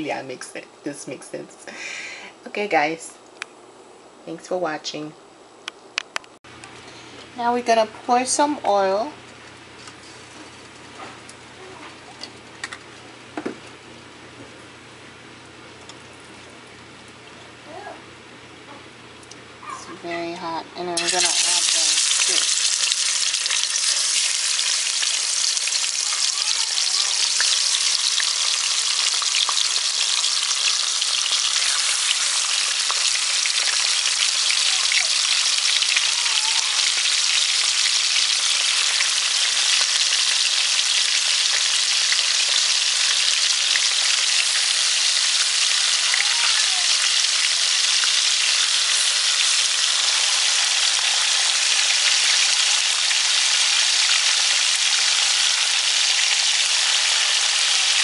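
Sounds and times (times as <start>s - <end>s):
fish frying in hot oil: 21.0s - 58.0s.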